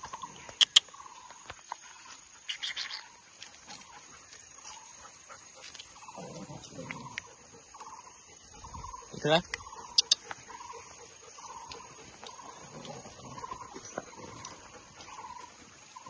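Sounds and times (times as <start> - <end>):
dog vocalisations: 6.0 - 16.0.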